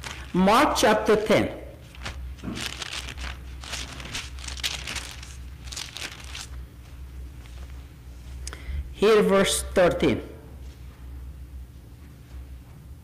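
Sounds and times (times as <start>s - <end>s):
paper pages rustling: 0.0s - 0.4s, 1.8s - 6.6s.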